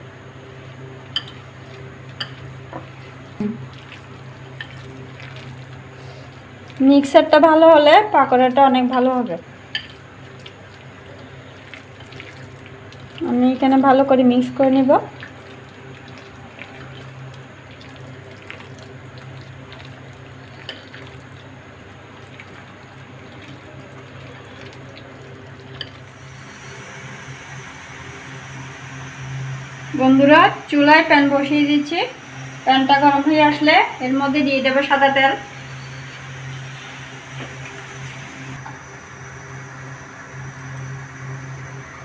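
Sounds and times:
steady low hum: 0.0s - 42.0s
hand squelching wet batter: 1.2s - 6.9s, 15.0s - 26.0s.

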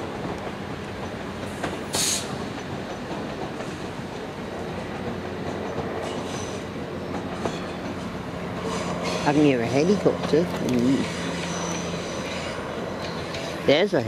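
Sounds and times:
train wheels rumbling on rails: 0.0s - 14.0s
high wheel screech: 6.0s - 6.7s, 10.9s - 13.6s.

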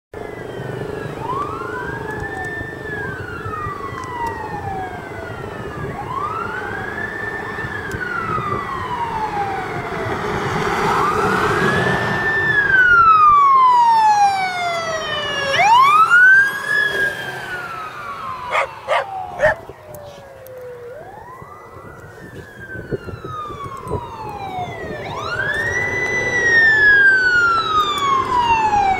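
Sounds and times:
fire truck sirens wailing: 0.2s - 28.9s.

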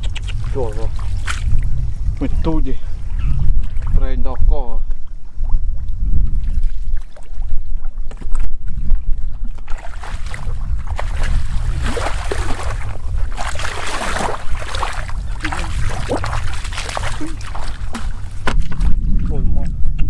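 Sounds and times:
steady low rumble: 0.0s - 6.6s, 7.6s - 20.0s
feet splashing in shallow water: 0.4s - 1.6s, 6.4s - 18.9s.

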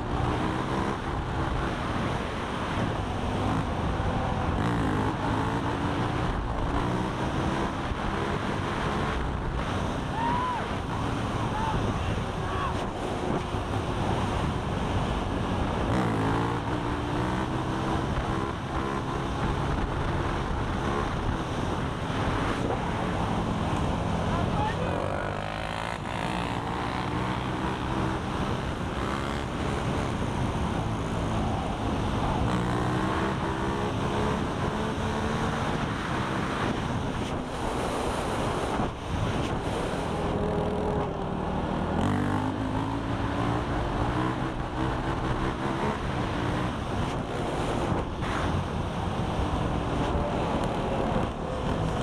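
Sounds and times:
quad engine accelerating: 0.0s - 52.0s
wind noise on microphone: 25.6s - 41.2s.

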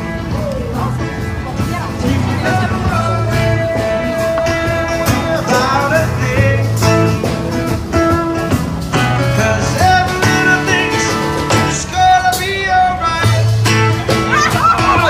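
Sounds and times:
blues-rock guitar: 0.0s - 15.0s
drums: 0.0s - 15.0s
person singing: 1.9s - 7.3s, 9.1s - 15.0s.

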